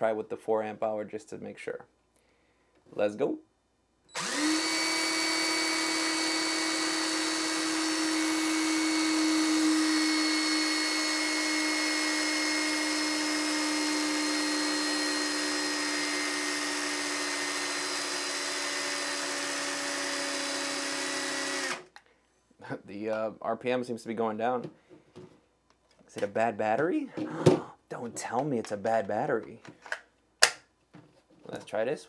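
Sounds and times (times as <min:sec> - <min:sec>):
impact driver motor whine: 0:04.1 - 0:21.9.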